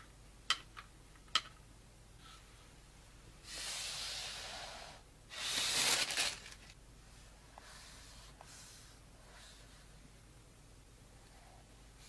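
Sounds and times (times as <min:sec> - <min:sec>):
packaging rustling: 0:05.4 - 0:06.8.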